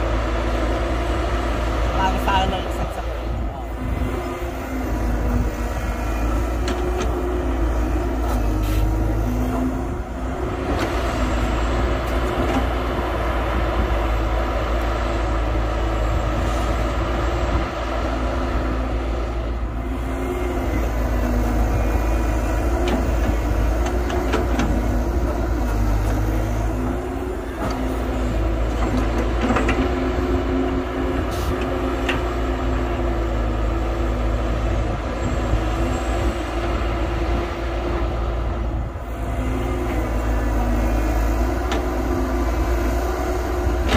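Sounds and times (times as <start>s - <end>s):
diesel excavator engine running: 0.0s - 43.9s.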